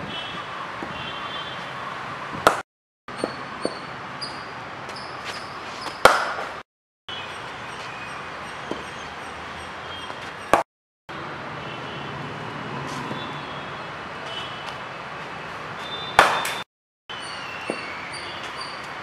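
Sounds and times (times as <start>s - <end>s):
outdoor background noise: 0.0s - 19.0s
cricket ball cracking off bat: 6.0s - 6.6s, 16.2s - 16.6s.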